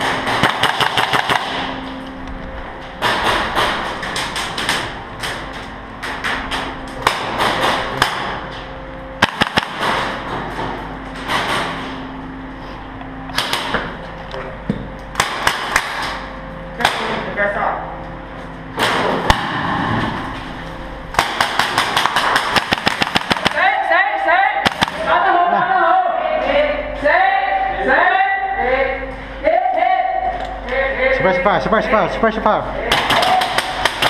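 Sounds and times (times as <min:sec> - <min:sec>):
airsoft guns full-auto bursts: 0:00.3 - 0:01.6, 0:09.2 - 0:09.9, 0:21.2 - 0:23.6.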